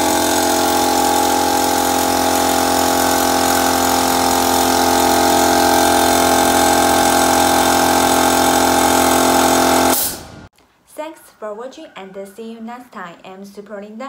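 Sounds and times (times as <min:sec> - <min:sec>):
air compressor humming: 0:00.0 - 0:10.5.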